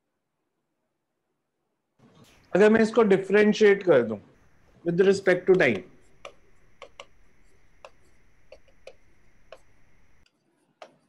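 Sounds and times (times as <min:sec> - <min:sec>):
stylus tapping on glass: 0:04.5 - 0:10.2.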